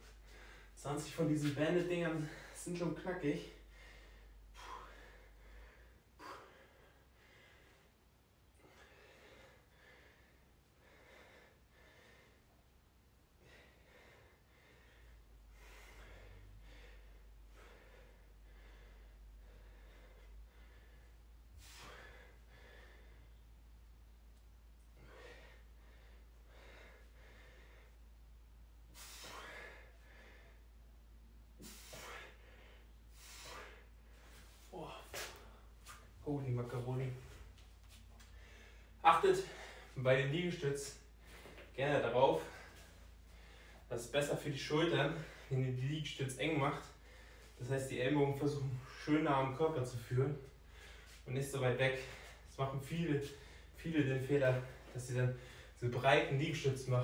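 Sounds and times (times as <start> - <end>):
man breathing with strain: 3.6 - 12.5, 13.3 - 23.6, 24.8 - 28.2, 28.8 - 36.0, 37.3 - 40.0, 40.9 - 41.7, 42.4 - 43.9, 46.9 - 47.6, 50.4 - 51.2.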